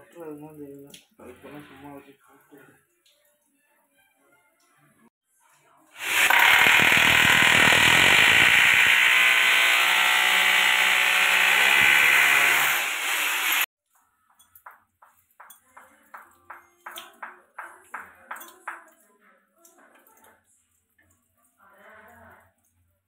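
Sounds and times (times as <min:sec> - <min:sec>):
electric drill boring into tile: 0:06.0 - 0:13.7.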